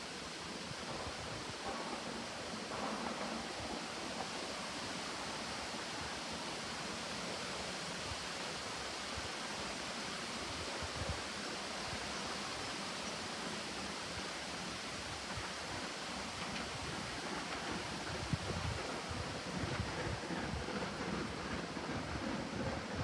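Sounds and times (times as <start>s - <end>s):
breeze hissing through trees: 0.0s - 23.0s
wind buffeting microphone: 15.2s - 23.0s.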